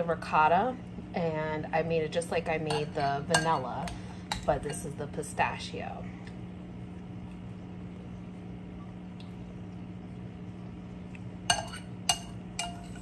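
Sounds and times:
low hum: 0.0s - 13.0s
metal spoon clinking on cup: 2.6s - 3.6s, 11.5s - 13.0s.

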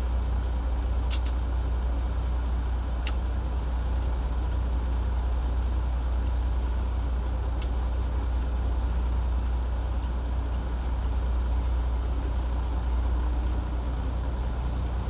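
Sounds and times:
idling engine hum: 0.0s - 15.0s
radish being bitten: 1.1s - 1.4s.

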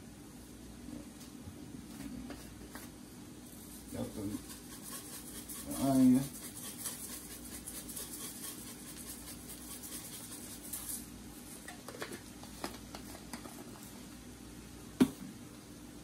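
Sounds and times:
seasoning shaken from shaker: 3.4s - 11.2s.

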